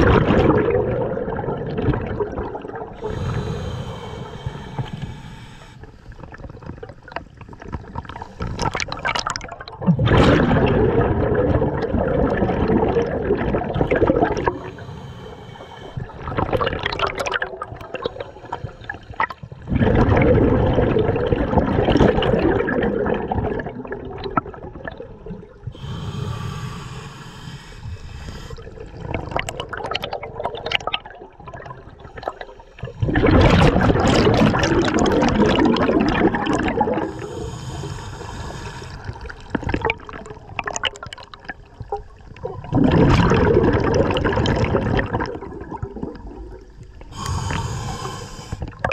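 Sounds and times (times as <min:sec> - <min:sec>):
exhaled bubbles rushing: 0:00.0 - 0:03.5, 0:06.2 - 0:14.9, 0:15.8 - 0:26.0, 0:28.3 - 0:48.0
diver inhaling through regulator: 0:02.9 - 0:06.2, 0:08.2 - 0:09.2, 0:13.8 - 0:17.1, 0:17.8 - 0:19.7, 0:25.7 - 0:29.1, 0:31.8 - 0:34.2, 0:36.2 - 0:39.6, 0:47.1 - 0:48.8.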